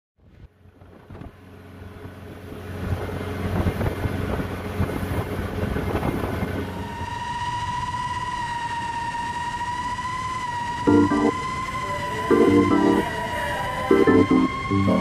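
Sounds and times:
motorboat engine running: 0.5s - 6.9s
wind noise: 2.7s - 8.4s.

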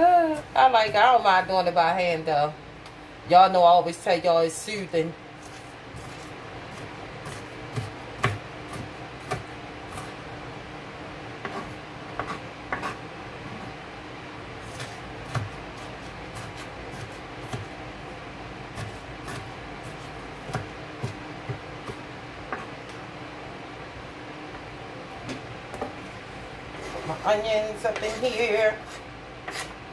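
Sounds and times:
knife chopping on plastic board: 7.2s - 10.1s, 14.7s - 17.7s, 20.4s - 22.7s.

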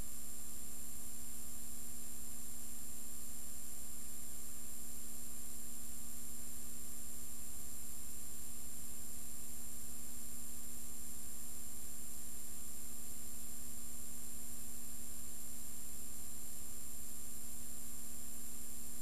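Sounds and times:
faint high whine: 0.0s - 19.0s.

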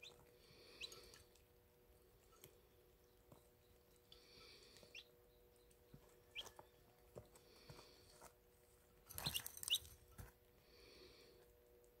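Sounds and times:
chicks peeping: 0.0s - 1.4s, 2.3s - 7.8s, 9.2s - 9.9s.

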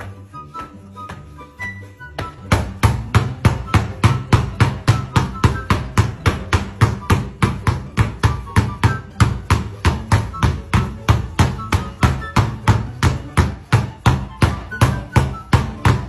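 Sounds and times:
basketballs bouncing on hard floor: 2.2s - 16.0s.

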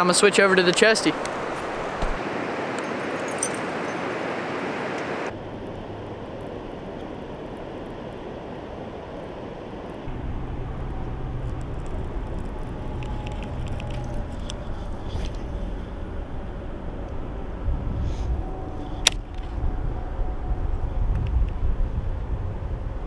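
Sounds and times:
low rumble: 5.3s - 23.0s.

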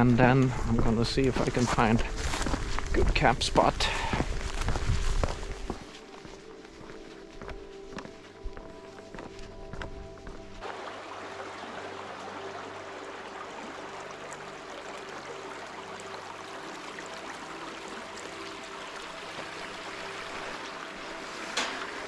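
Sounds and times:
stream water flowing: 9.5s - 22.0s.

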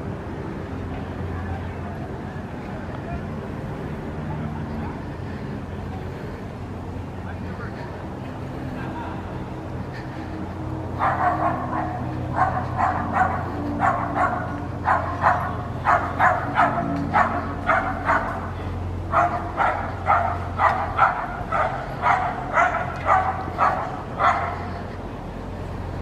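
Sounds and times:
dog barking: 11.0s - 18.5s, 19.1s - 24.7s.

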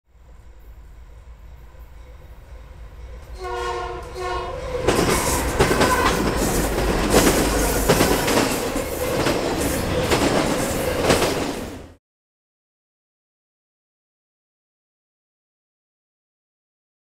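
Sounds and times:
locomotive air horn blasts: 3.3s - 6.2s
train wheels knocking on rail joints: 3.6s - 11.8s.

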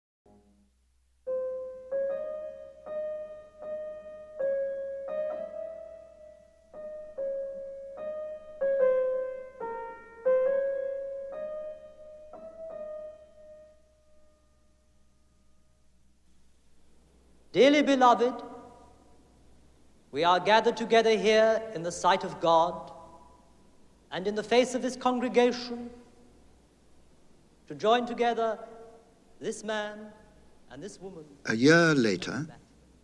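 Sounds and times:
slow piano melody: 0.3s - 17.4s.

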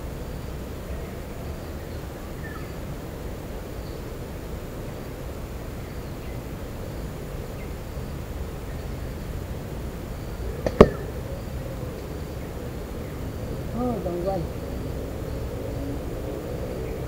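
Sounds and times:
woodland background hiss: 0.0s - 17.0s
slingshot hitting metal target: 10.6s - 11.1s
slingshot snap: 10.6s - 11.1s.

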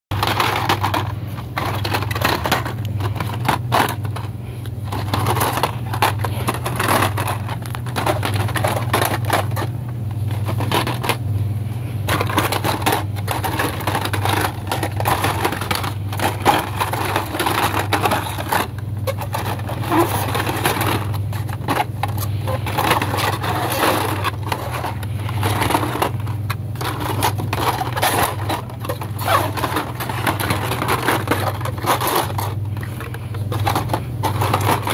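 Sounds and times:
blister packs clacking and crinkling: 0.1s - 34.9s
steady low hum: 0.1s - 34.9s.

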